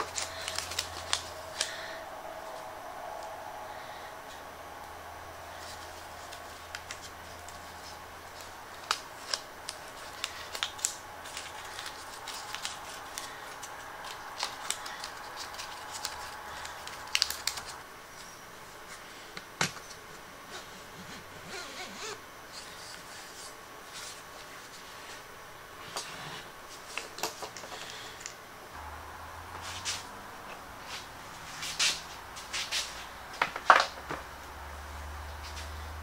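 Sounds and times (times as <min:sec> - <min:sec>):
tape peeled and crumpled: 0:00.0 - 0:02.7, 0:05.5 - 0:17.8.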